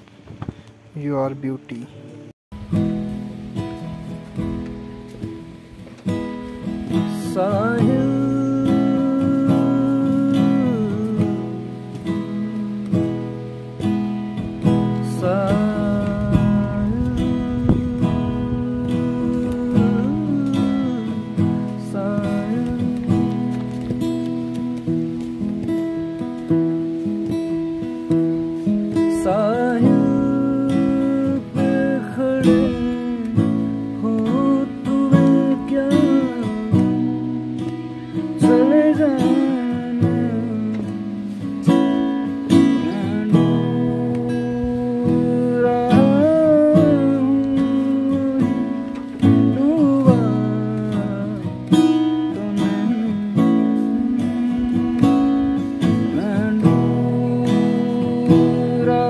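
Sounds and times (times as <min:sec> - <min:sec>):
acoustic guitar strumming: 0:00.0 - 0:59.0
man singing: 0:06.8 - 0:13.4, 0:14.8 - 0:24.5, 0:28.9 - 0:59.0.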